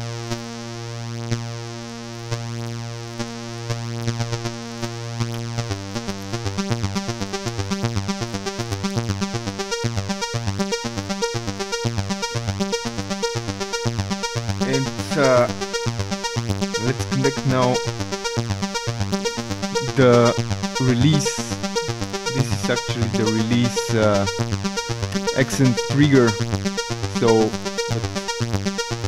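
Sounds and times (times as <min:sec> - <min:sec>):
short sequenced synthesizer notes: 0:13.7 - 0:29.0
synthesizer held tone: 0:14.6 - 0:18.4, 0:19.2 - 0:29.0.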